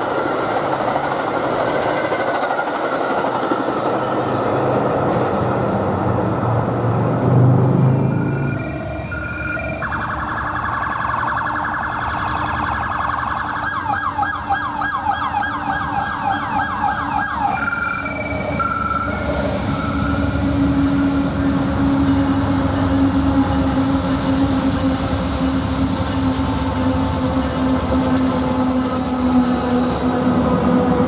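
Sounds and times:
diesel locomotives rumbling: 0.0s - 31.0s
emergency vehicle siren wailing: 7.2s - 31.0s.

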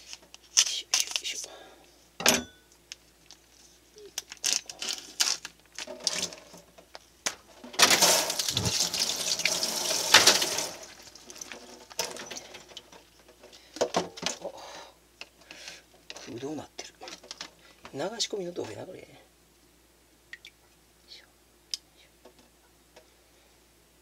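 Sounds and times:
plastic tray rustling and clicking: 4.4s - 8.6s, 17.0s - 17.6s.

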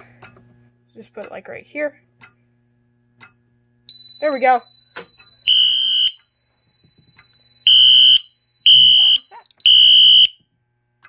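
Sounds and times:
fire alarm horn blasts: 3.9s - 6.5s, 7.2s - 10.4s.

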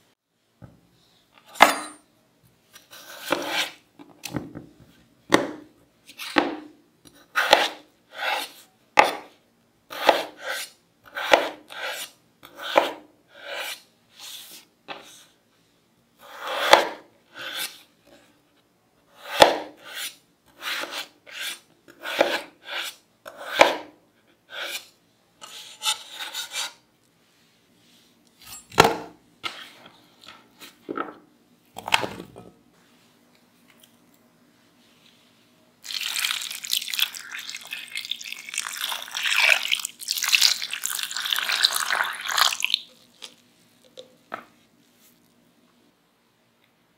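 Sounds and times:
knife slicing potatoes: 2.8s - 3.8s, 7.3s - 13.8s, 16.2s - 17.8s, 19.2s - 23.9s.

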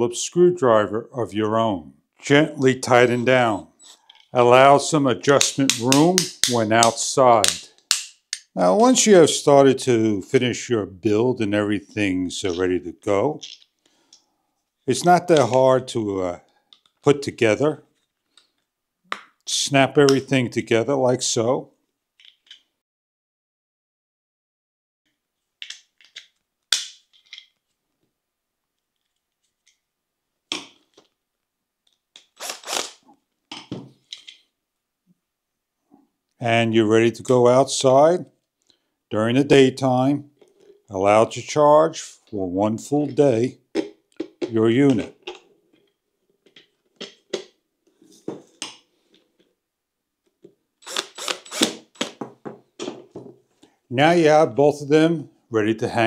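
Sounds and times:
objects knocking on tabletop: 52.2s - 53.4s.

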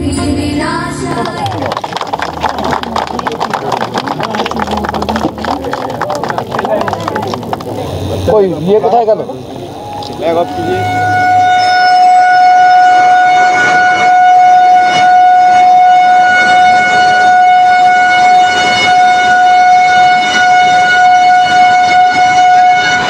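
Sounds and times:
locomotive horn long blast: 1.7s - 23.0s.

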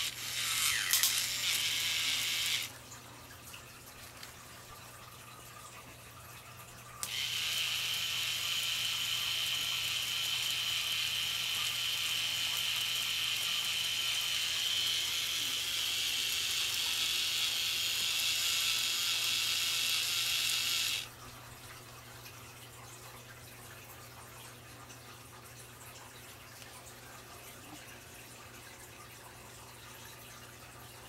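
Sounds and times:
small electric motor whirring: 0.0s - 2.8s, 7.0s - 21.1s.

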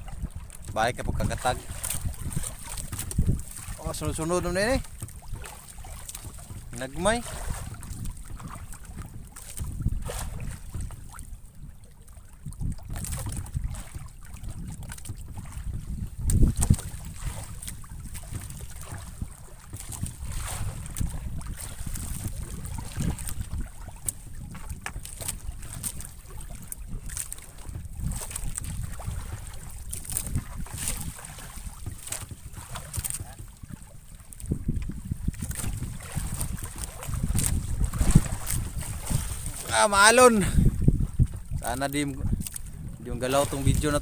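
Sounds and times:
water lapping around a boat: 0.0s - 44.0s
wind rumbling on microphone: 0.0s - 44.0s.

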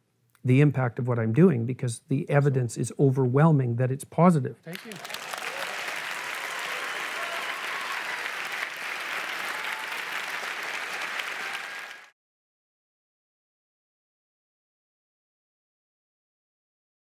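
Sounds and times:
audience applauding: 4.7s - 12.2s.

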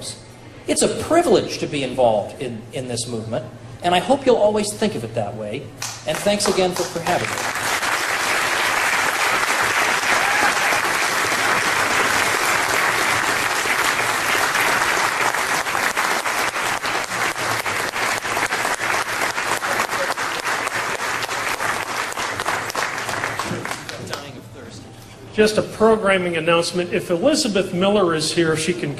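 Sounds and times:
audience applauding: 5.8s - 24.3s.

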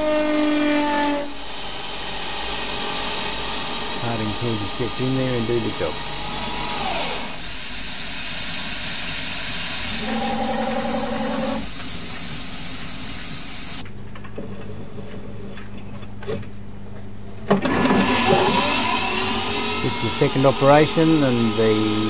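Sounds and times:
lathe motor low hum: 0.0s - 13.8s
coolant nozzle hissing: 6.8s - 13.8s, 19.8s - 22.0s.

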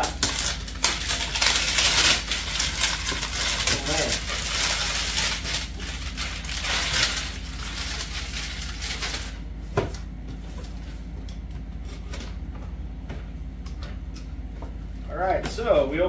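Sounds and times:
cardboard crinkling and scraping: 0.0s - 11.1s
paper rustling: 0.1s - 9.4s.

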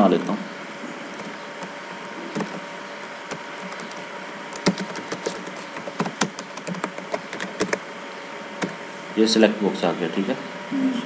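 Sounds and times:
faint steady hum: 0.0s - 11.0s
keyboard typing clicks: 3.3s - 7.8s.

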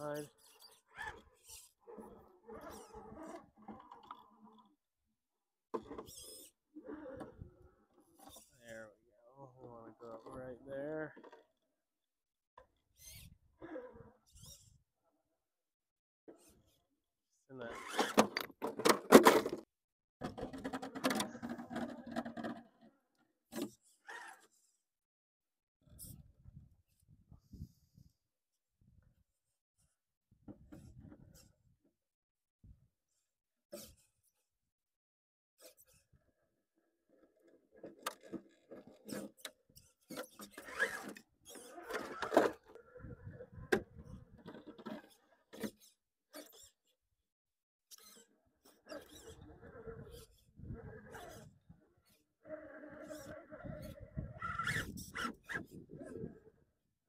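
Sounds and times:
tyres scraping on rock: 54.4s - 55.8s.

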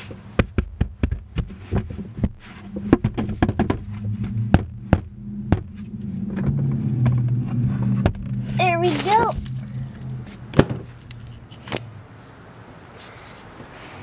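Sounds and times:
low steady hum: 0.0s - 12.9s
sharp knocks and taps: 0.4s - 3.8s.

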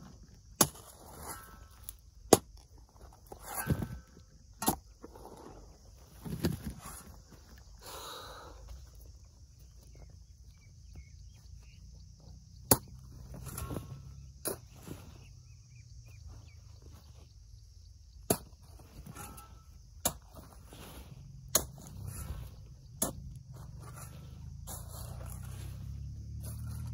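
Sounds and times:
hoe striking dry soil: 0.0s - 5.5s, 12.2s - 15.2s, 18.0s - 26.9s
earth scraping: 0.0s - 26.9s.

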